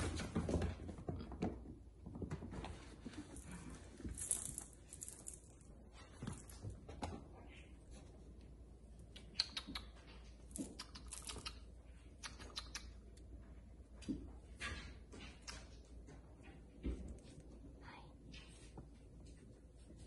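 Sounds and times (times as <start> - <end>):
kitten claws clicking and scratching: 9.0 - 13.2.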